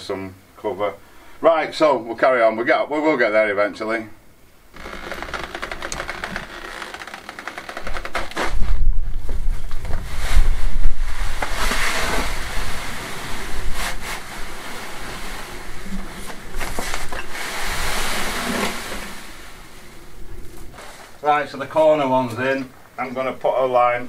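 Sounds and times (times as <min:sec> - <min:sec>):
wind on microphone: 0:08.4 - 0:20.8
load pouring from wheelbarrow: 0:10.0 - 0:19.8, 0:20.7 - 0:21.2.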